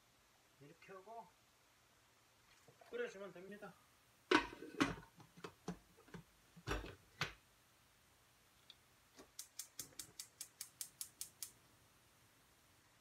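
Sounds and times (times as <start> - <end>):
lid knocking on metal pot: 4.3 - 5.1.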